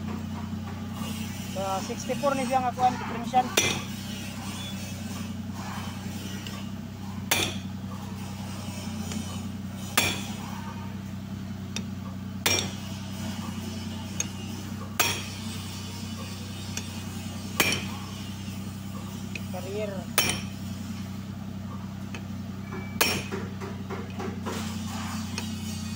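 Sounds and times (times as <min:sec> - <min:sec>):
low steady hum: 0:00.0 - 0:25.9
hammer striking steel bar: 0:03.5 - 0:04.0, 0:07.3 - 0:07.7, 0:09.9 - 0:10.6, 0:11.7 - 0:14.4, 0:15.0 - 0:15.5, 0:17.6 - 0:18.2, 0:20.2 - 0:20.7, 0:22.7 - 0:25.8.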